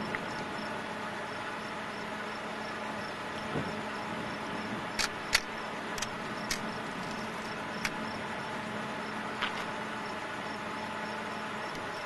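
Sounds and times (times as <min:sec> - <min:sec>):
camera shutter clicks: 0:05.0 - 0:06.7.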